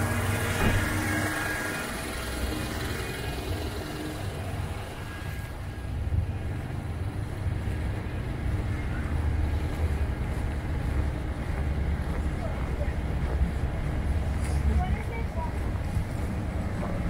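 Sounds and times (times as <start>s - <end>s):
passing traffic rumble: 0.0s - 17.0s.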